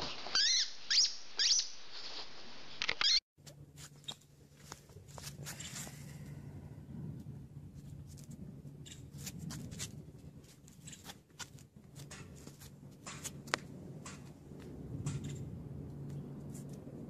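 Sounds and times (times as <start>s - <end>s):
low steady hum: 3.4s - 17.0s.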